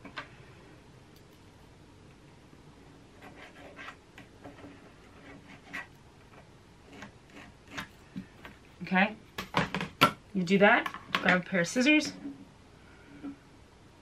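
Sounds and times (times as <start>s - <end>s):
marker pen scratching on fabric: 3.2s - 5.9s.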